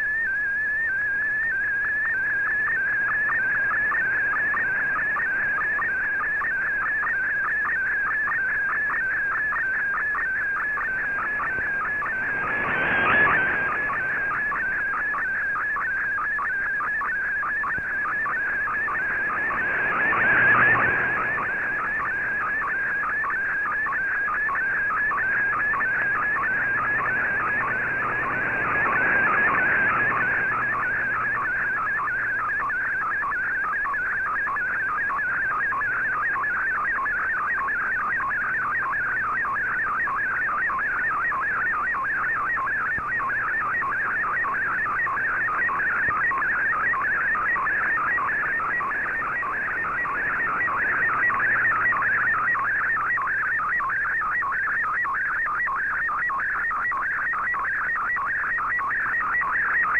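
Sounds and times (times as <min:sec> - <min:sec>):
warbling whistling radio tone: 0:00.0 - 0:59.9
rush of radio hiss: 0:11.2 - 0:14.9.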